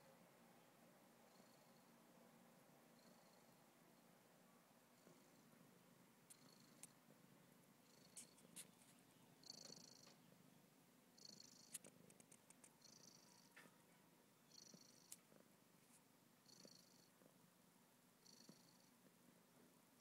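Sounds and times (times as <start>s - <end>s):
soft hiss: 0.0s - 20.0s
cat purring: 1.3s - 1.9s, 3.0s - 3.7s, 4.8s - 17.6s, 18.2s - 20.0s
faint clicks: 11.6s - 12.8s, 15.0s - 15.3s.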